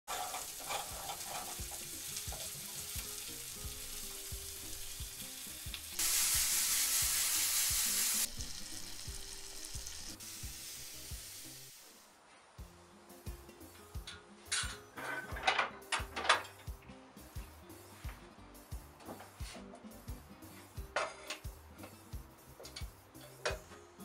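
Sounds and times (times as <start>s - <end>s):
vegetables sizzling in frying pans: 0.1s - 12.2s
background music with steady beat: 1.0s - 11.8s, 12.5s - 24.0s.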